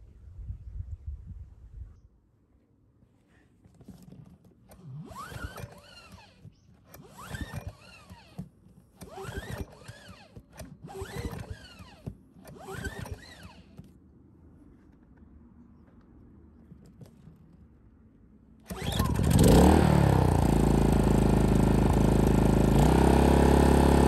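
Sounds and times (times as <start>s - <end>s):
generator recoil starter pulls: 3.7s - 14.0s, 18.6s - 24.0s.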